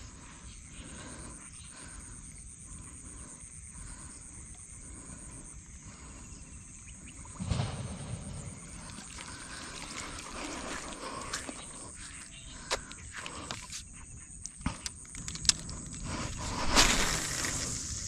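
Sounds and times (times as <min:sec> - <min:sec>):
insects droning: 0:00.0 - 0:18.0
thump and rustle: 0:07.4 - 0:11.1.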